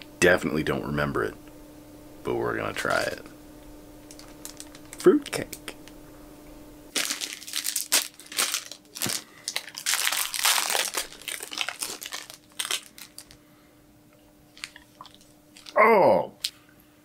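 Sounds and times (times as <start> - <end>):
plastic wrapping crinkling: 4.1 - 5.7, 6.9 - 13.4, 14.5 - 15.8.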